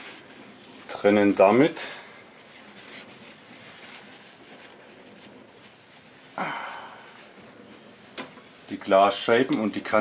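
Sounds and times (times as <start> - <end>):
person breathing: 6.3 - 7.4.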